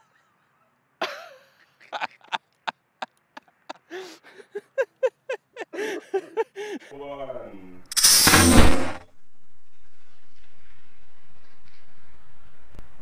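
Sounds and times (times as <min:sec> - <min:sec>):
people laughing: 0:01.0 - 0:06.9.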